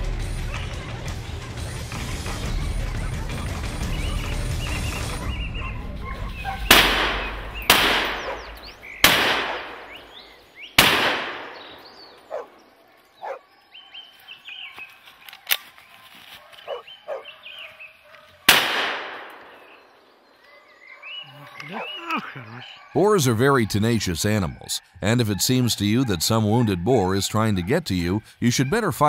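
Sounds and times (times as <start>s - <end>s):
rifle shots echoing: 6.6s - 12.5s, 18.5s - 20.0s.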